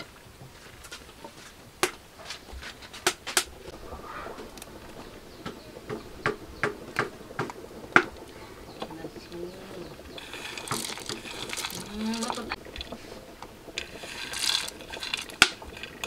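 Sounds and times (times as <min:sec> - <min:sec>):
sharp clicks and taps: 0:05.4 - 0:08.9.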